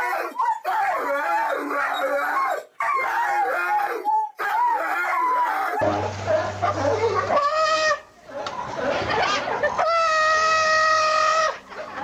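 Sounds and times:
dog howling: 0.0 - 8.0.

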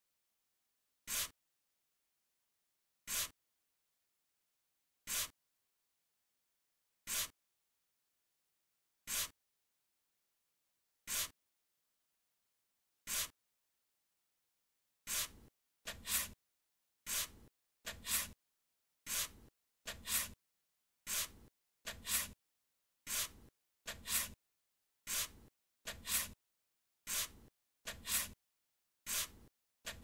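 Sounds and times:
paintbrush swishing on paper: 1.1 - 1.4, 3.1 - 3.4, 5.1 - 5.4, 7.1 - 7.4, 9.1 - 9.4, 11.1 - 11.4, 13.1 - 13.4, 15.1 - 16.4, 17.0 - 18.4, 19.0 - 20.4, 21.1 - 22.4, 23.1 - 24.4, 25.1 - 26.4, 27.1 - 28.4, 29.0 - 30.0.

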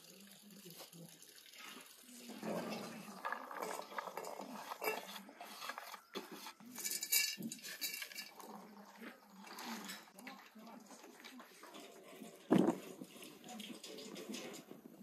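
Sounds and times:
hands stirring rice grains: 2.4 - 15.0.

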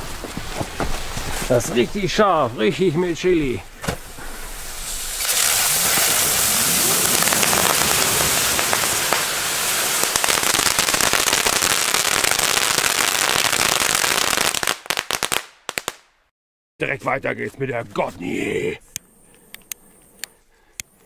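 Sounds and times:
firework hissing and crackling: 0.0 - 2.3, 3.6 - 16.0
firework cracks: 3.8 - 16.2.

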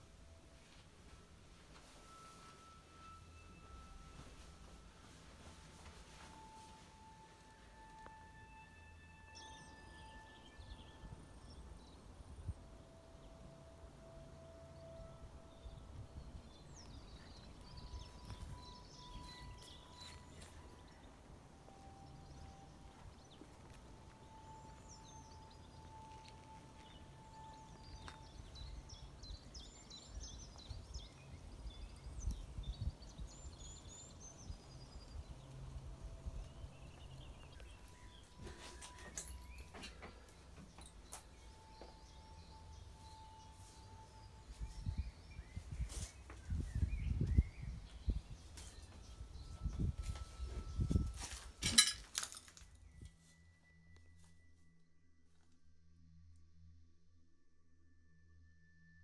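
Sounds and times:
birds chirping and singing: 14.4 - 51.9.

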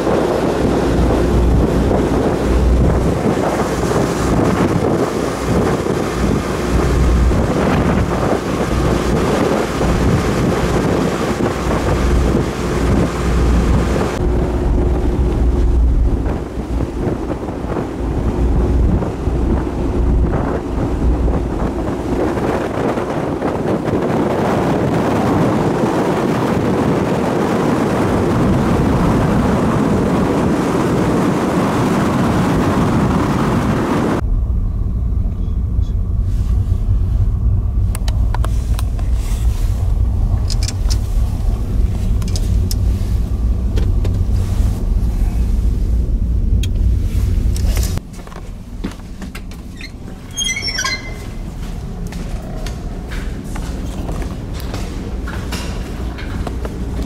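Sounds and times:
ship engine rumble: 0.0 - 57.0
wind buffeting microphone: 0.0 - 57.0
low drone inside a cabin: 13.3 - 22.1, 34.2 - 57.0.

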